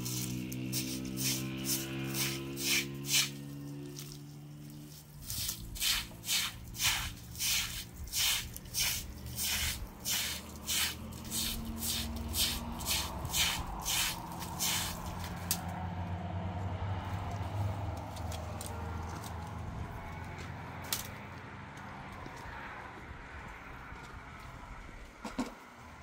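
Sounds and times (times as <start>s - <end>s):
rhythmic rough scraping: 0.0s - 15.7s.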